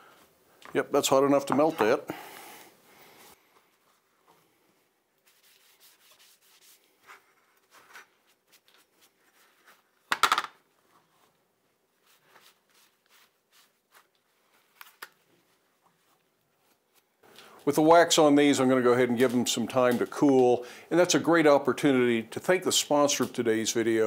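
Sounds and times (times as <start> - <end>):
cloth rag rubbing on steel: 5.2 - 9.9, 12.0 - 14.6.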